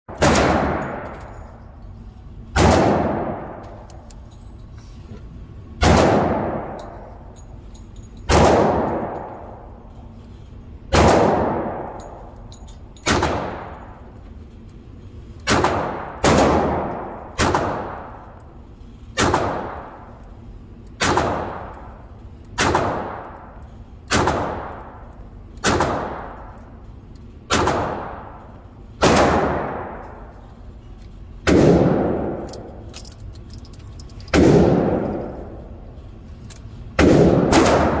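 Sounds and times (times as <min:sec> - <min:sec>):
echoing gunshots: 0:00.1 - 0:01.2, 0:02.5 - 0:03.7, 0:05.8 - 0:06.8, 0:08.3 - 0:09.5, 0:10.9 - 0:12.0, 0:13.0 - 0:13.9, 0:15.4 - 0:18.2, 0:19.2 - 0:20.1, 0:21.0 - 0:21.8, 0:22.6 - 0:23.5, 0:24.1 - 0:25.0, 0:25.6 - 0:26.6, 0:27.5 - 0:28.4, 0:29.0 - 0:30.3, 0:31.4 - 0:32.8, 0:34.3 - 0:35.7, 0:37.0 - 0:38.0.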